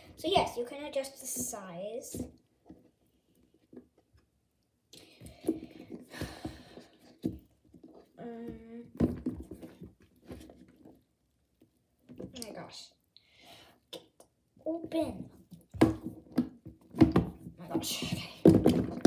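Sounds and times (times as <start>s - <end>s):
plastic box rubbing and knocking: 15.7s - 19.0s.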